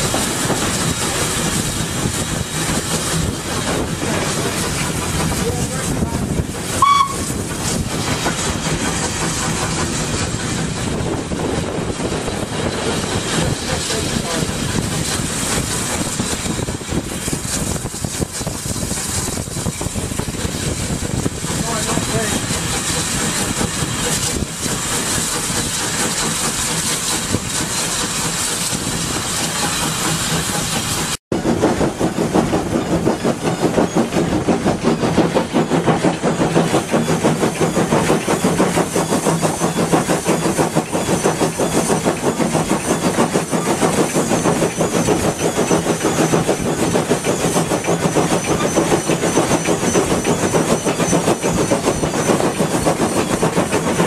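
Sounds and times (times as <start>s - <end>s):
locomotive running noise: 0.0s - 54.0s.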